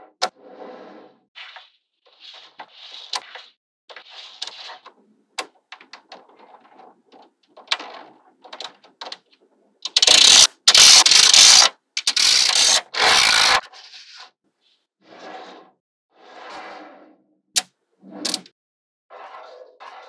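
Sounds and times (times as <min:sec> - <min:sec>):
balls scraping and rattling: 0:00.2 - 0:15.7, 0:18.0 - 0:18.5, 0:19.1 - 0:20.0
magnetic balls clicking: 0:09.9 - 0:13.6.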